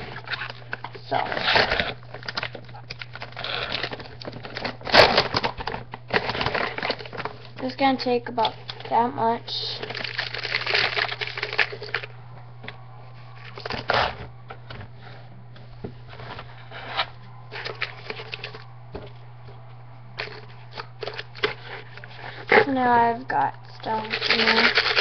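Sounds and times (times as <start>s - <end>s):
paper rustling and crinkling: 0.0s - 7.6s, 9.8s - 12.1s, 16.0s - 19.2s, 20.2s - 22.8s, 23.8s - 25.0s
steady low hum: 0.0s - 25.0s.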